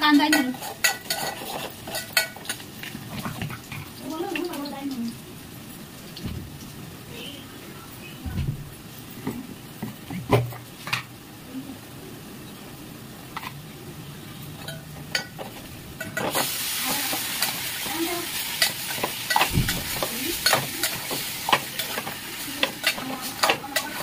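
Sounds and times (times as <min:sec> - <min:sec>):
food sizzling in hot oil: 0:00.0 - 0:08.0, 0:08.8 - 0:24.0
spoon scraping a pan: 0:00.1 - 0:03.9, 0:14.6 - 0:24.0.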